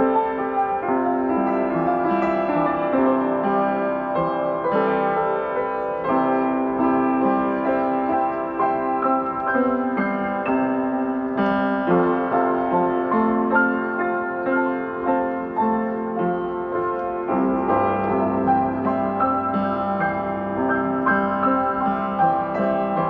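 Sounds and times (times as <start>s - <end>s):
piano music: 0.0s - 23.0s.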